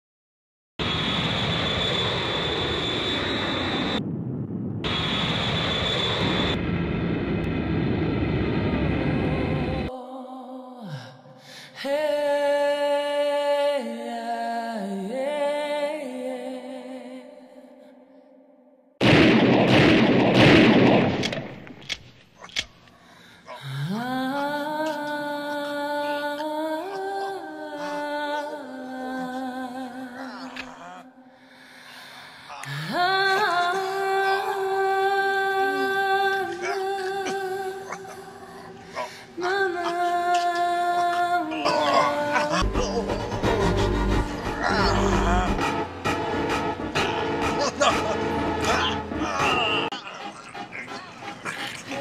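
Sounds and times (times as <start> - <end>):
high whine: 0.8 - 9.9, 42.6 - 49.9
low hum: 0.8 - 9.9, 42.5 - 49.4
machine rumble: 3.4 - 9.9, 42.6 - 47.6
loud echoing blast: 19.0 - 21.8.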